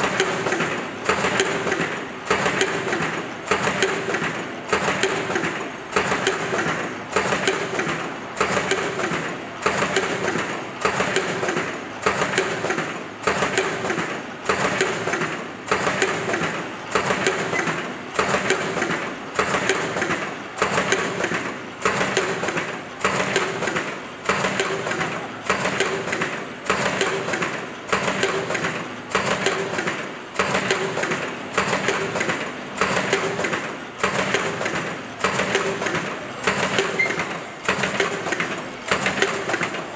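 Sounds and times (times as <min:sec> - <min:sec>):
machine cycling bursts: 0:36.2 - 0:39.9.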